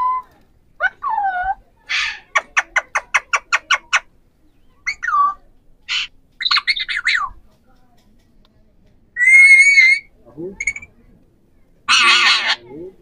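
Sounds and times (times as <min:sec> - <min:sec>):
parakeets squawking and screeching: 0:01.9 - 0:04.0, 0:05.9 - 0:07.2, 0:09.2 - 0:10.9, 0:11.9 - 0:12.7
sharp bird chirps: 0:10.6 - 0:10.9.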